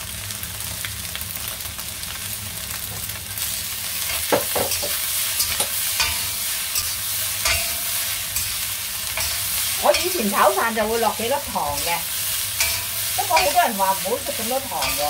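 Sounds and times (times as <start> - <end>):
rice sizzling in a wok: 0.0 - 15.0
metal spatula scraping a wok: 4.0 - 15.0.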